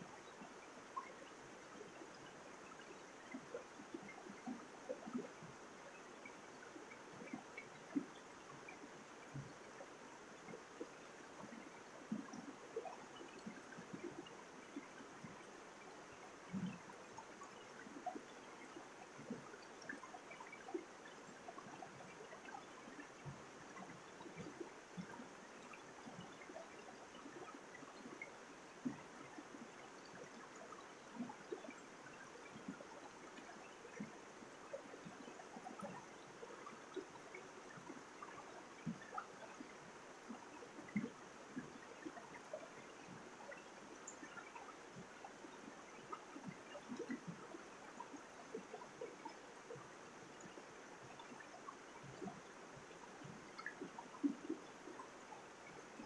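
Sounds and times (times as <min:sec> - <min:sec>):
stream running over rocks: 0:00.0 - 0:56.0.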